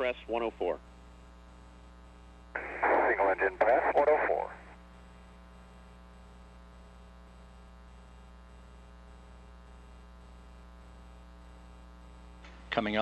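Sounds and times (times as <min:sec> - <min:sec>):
faint electrical mains hum: 0:00.0 - 0:13.0.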